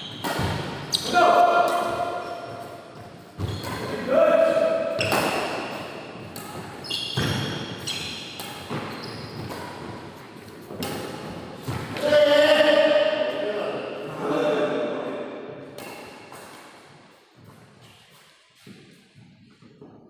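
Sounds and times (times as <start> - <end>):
racket striking shuttlecock: 0.1 - 12.0.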